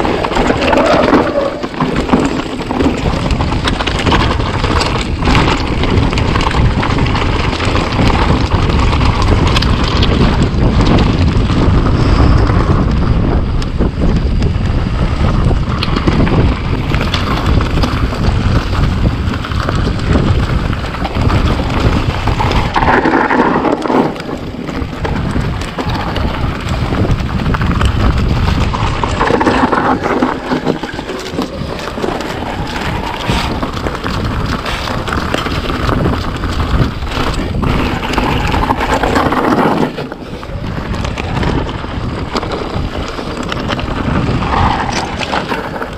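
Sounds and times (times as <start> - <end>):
bike knocks and rattles: 0.0 - 45.9
wind buffeting microphone: 0.0 - 45.9
rushing noise: 11.1 - 45.9.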